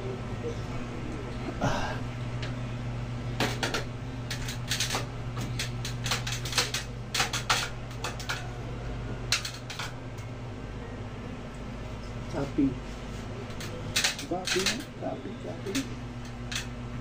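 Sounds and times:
steady low hum: 0.0s - 17.0s
small metal parts clicking: 3.4s - 8.5s, 9.3s - 9.9s, 13.5s - 14.9s, 15.6s - 16.7s.

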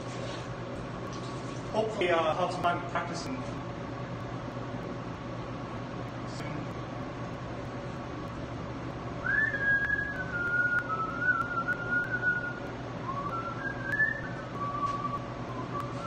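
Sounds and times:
man whistling a tune: 9.2s - 16.0s.

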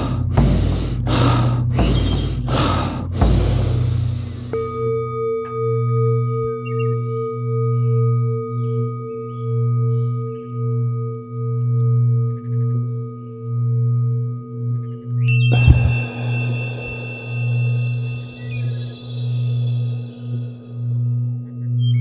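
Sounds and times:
low ambient drone: 0.0s - 22.0s
faint chirps: 15.3s - 22.0s
steady higher tones: 15.3s - 22.0s.

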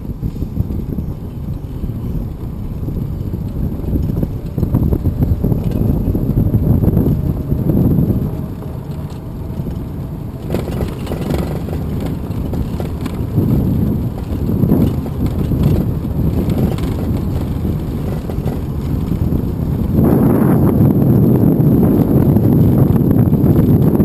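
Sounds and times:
toy truck rolling on asphalt: 0.0s - 24.0s
wind buffeting microphone: 0.0s - 24.0s.

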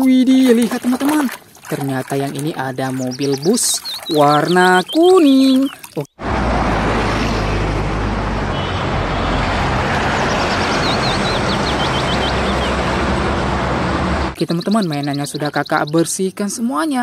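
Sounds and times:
street traffic: 3.4s - 16.1s
bus engine rumbling past: 6.2s - 14.4s.

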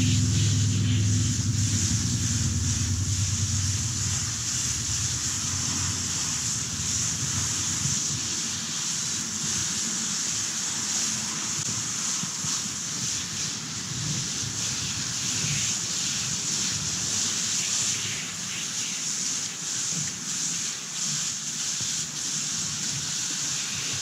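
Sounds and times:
low motor hum: 0.0s - 8.8s
hose spraying water: 0.0s - 24.0s.

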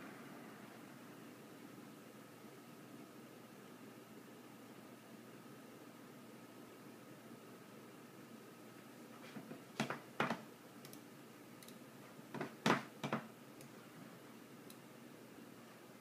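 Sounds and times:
faint steady hiss: 0.0s - 16.0s
sharp clicks: 11.6s - 11.8s.

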